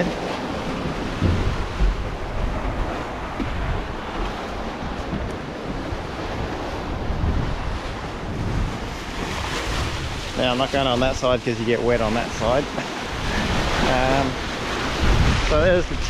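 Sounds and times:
ocean waves rushing along hull: 0.0s - 16.0s
wind buffeting microphone: 0.0s - 16.0s.

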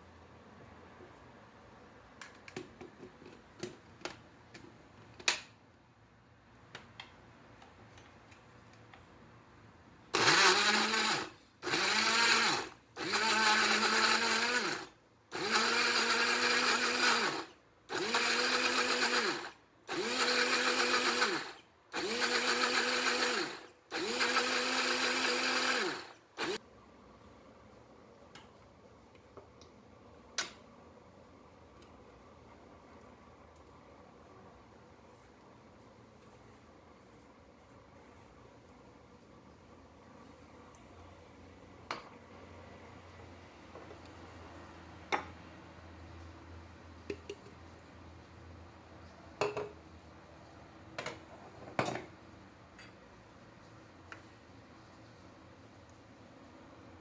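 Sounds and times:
blender motor pulsing: 10.2s - 26.6s.

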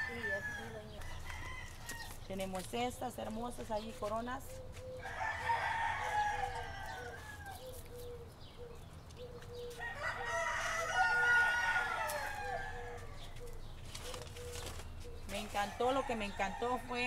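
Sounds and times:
rooster crowing: 0.0s - 2.2s, 5.0s - 7.7s, 9.7s - 13.4s.

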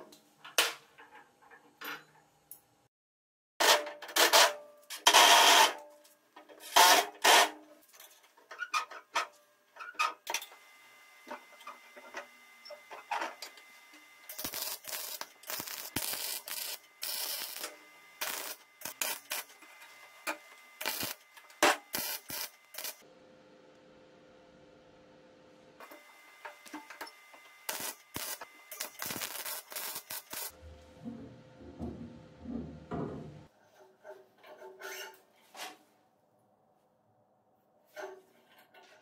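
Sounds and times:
welding arc crackling: 11.2s - 23.0s, 25.8s - 30.8s.

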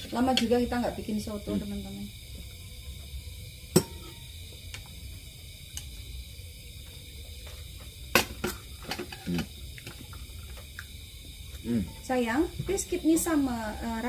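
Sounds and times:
spoons clinking against bowls: 3.7s - 4.2s.

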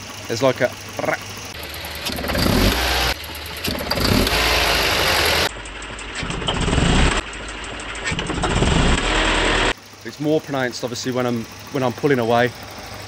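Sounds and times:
engine pinging rattle: 0.0s - 13.0s
car engine revving: 0.8s - 9.8s.

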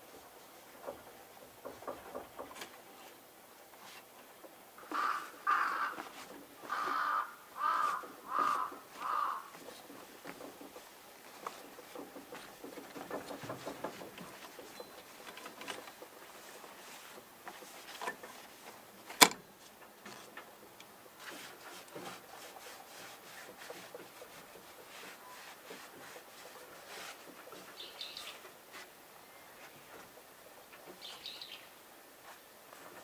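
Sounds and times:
bird chirping: 14.6s - 15.1s, 27.7s - 28.4s, 31.0s - 31.8s.

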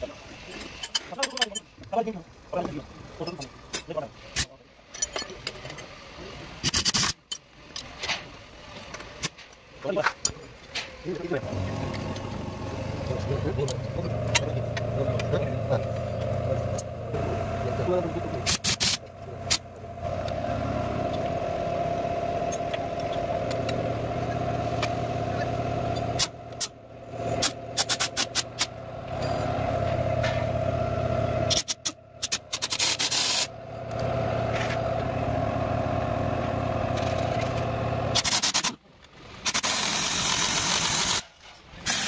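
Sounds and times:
motor hum: 11.1s - 38.2s
air hissing: 18.4s - 19.7s, 31.4s - 33.5s.

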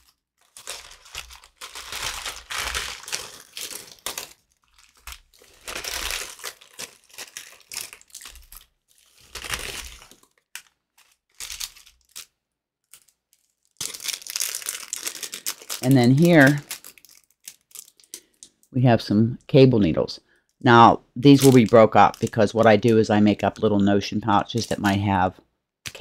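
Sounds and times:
packaging crinkling: 0.0s - 18.7s, 21.2s - 23.0s.

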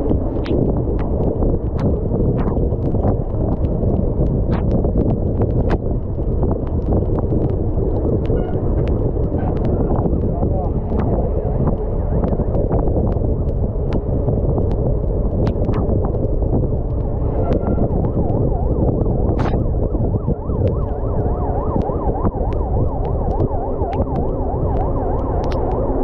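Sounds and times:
bike tyres on wet asphalt: 0.0s - 26.0s
wind noise: 0.0s - 26.0s
siren rising and falling: 8.3s - 11.0s, 17.0s - 26.0s
sharp clicks: 25.4s - 25.9s.

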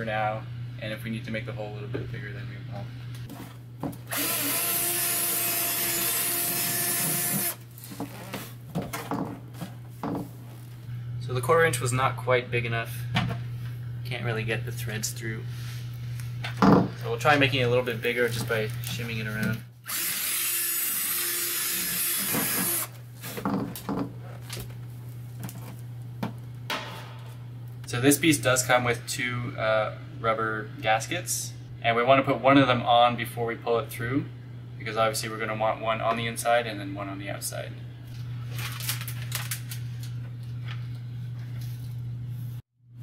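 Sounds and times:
cordless drill boring plastic: 4.1s - 7.6s, 19.9s - 23.0s.

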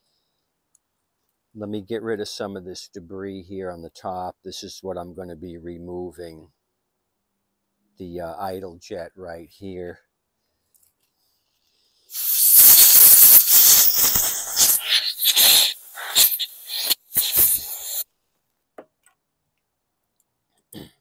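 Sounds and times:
compressed air blasting: 12.1s - 18.0s.

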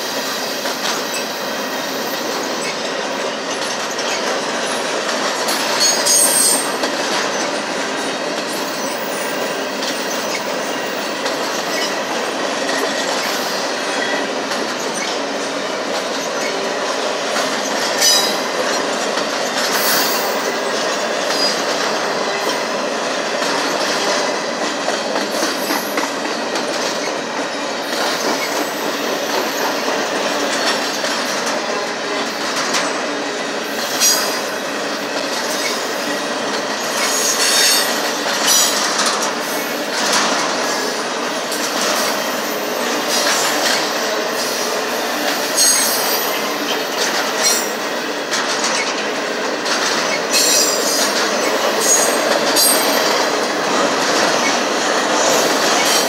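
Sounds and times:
freight train wheels rumbling: 0.0s - 56.0s
high-pitched wheel squeals: 5.8s - 6.8s.

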